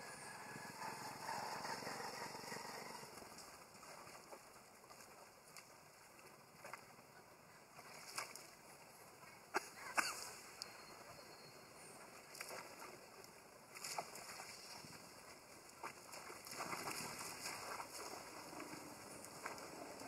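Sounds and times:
monkeys splashing in water: 0:12.3 - 0:20.0.

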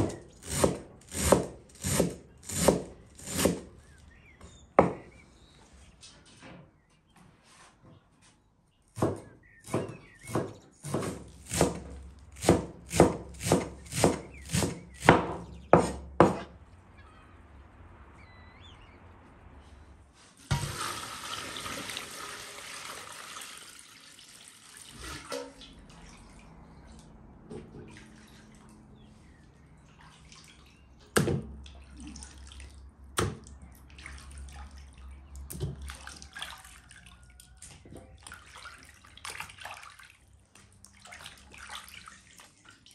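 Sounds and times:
knife chopping on wooden board: 0:00.0 - 0:03.6, 0:04.8 - 0:05.1, 0:09.0 - 0:16.6
water pouring into metal basin: 0:20.5 - 0:26.5
hands sloshing meat in water: 0:24.4 - 0:42.9.

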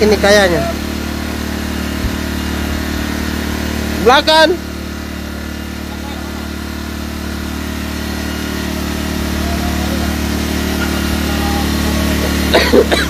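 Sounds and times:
generator engine humming: 0:00.0 - 0:13.0
person shouting: 0:09.3 - 0:12.7.

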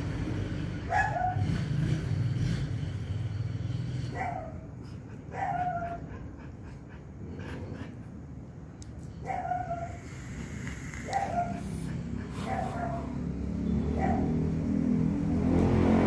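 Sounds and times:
dog whimpering: 0:04.8 - 0:08.2.

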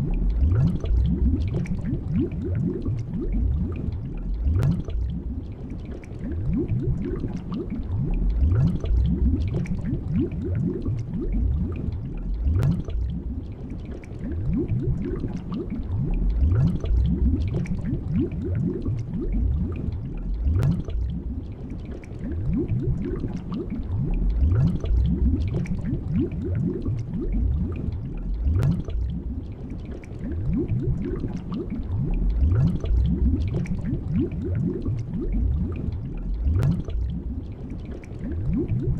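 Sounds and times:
underwater gurgling bubbles: 0:00.0 - 0:38.9
sharp bubble pops: 0:04.5 - 0:05.2, 0:12.5 - 0:13.0, 0:20.5 - 0:21.1, 0:28.5 - 0:29.2, 0:36.5 - 0:37.2.

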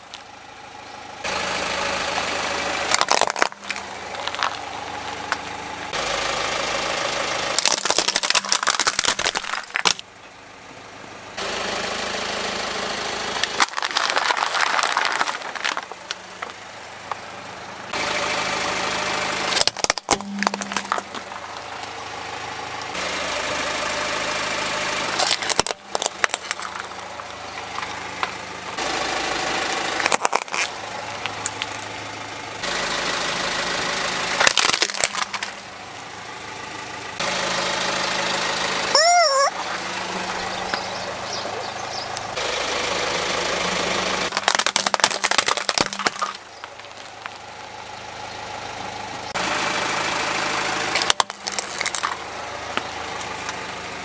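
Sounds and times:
car engine running: 0:00.0 - 0:54.0
plastic cracking and crunching: 0:02.9 - 0:04.6, 0:07.6 - 0:10.0, 0:13.4 - 0:16.6, 0:19.6 - 0:21.4, 0:25.2 - 0:27.9, 0:30.0 - 0:31.8, 0:34.4 - 0:35.6, 0:44.3 - 0:47.4, 0:51.0 - 0:52.2.

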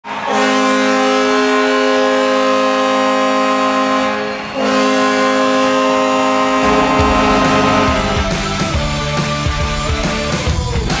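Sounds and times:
hockey goal horn blasts: 0:00.2 - 0:09.0.

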